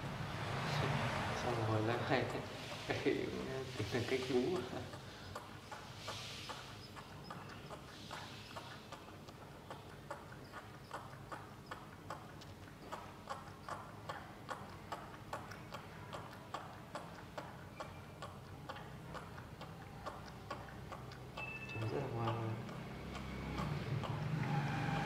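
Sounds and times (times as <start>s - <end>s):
monkey suckling bottle clicks: 4.9s - 24.4s.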